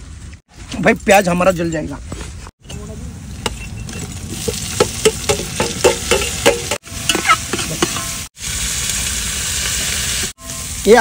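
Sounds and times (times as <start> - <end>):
onions sizzling: 3.4 - 11.0
metal spoon scraping a pan: 4.8 - 8.3.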